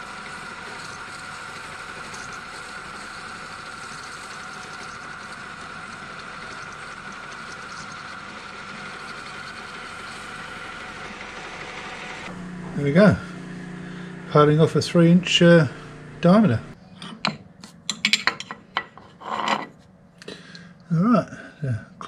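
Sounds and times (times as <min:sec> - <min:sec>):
lathe cutting steel pipe: 0:00.0 - 0:16.7.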